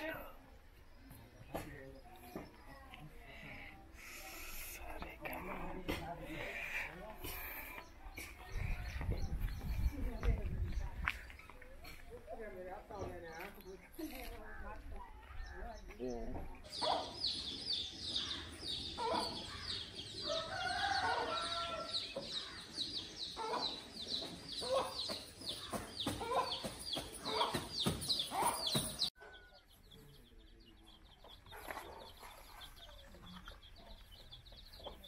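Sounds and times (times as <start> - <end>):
chicks peeping: 16.7 - 35.0.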